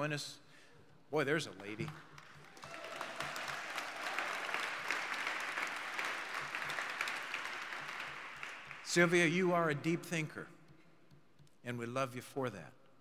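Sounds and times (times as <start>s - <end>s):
audience applauding: 1.6s - 9.3s.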